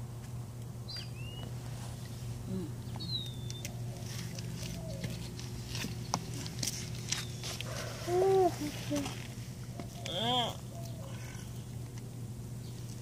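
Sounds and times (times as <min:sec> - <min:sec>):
steady low hum: 0:00.0 - 0:13.0
small bird chirping: 0:00.9 - 0:01.5, 0:02.8 - 0:04.1.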